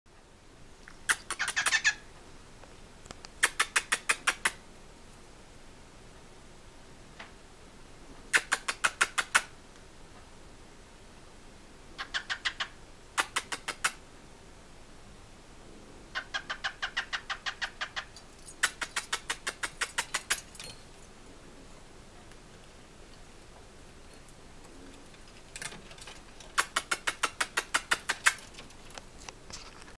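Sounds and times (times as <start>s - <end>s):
cockatiel making kissing sounds: 0.9s - 2.0s, 3.3s - 4.6s, 8.3s - 9.5s, 12.0s - 14.0s, 16.2s - 20.5s, 26.5s - 28.6s.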